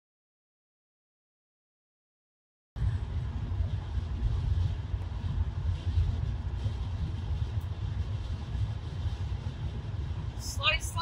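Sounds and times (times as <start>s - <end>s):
car engine drone: 2.8s - 11.0s
road rumble: 2.8s - 11.0s.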